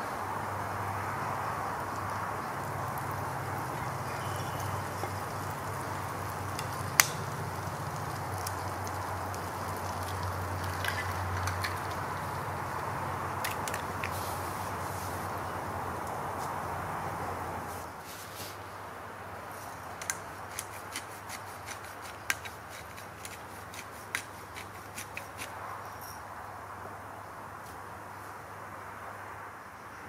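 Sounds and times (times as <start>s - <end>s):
wood fire hissing and crackling: 0.0s - 25.6s
egg cracking: 6.4s - 14.2s.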